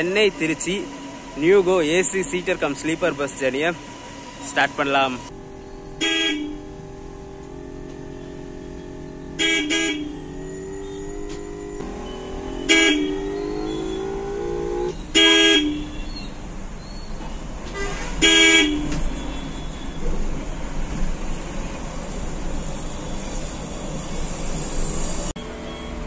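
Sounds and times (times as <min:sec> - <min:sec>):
traffic noise: 0:00.0 - 0:26.0
vehicle horn honking: 0:05.5 - 0:16.3, 0:17.7 - 0:20.1.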